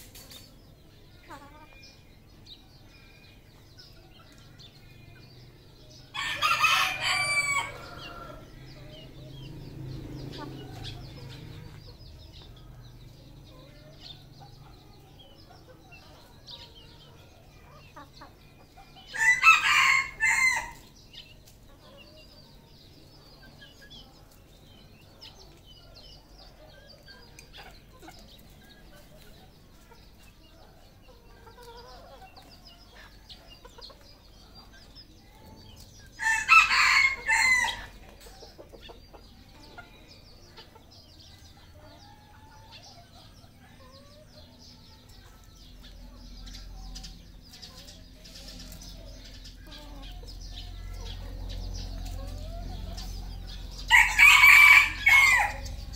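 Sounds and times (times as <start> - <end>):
faint clucking and chirping: 0.0 - 55.9
rooster crowing: 6.1 - 8.4, 19.2 - 20.8, 36.2 - 37.9, 53.8 - 55.8.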